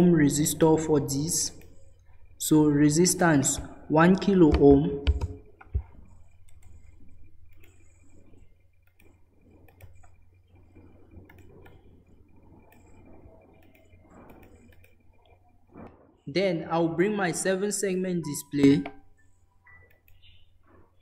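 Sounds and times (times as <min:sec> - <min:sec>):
low electrical hum: 0:00.0 - 0:21.0
mouse and keyboard clicks: 0:08.8 - 0:15.3, 0:19.7 - 0:20.5.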